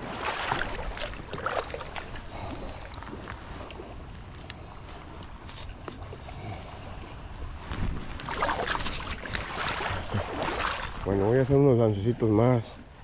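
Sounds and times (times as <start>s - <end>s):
splashing in water: 0.0s - 3.8s, 8.1s - 11.2s
water swishing around legs: 0.0s - 11.6s.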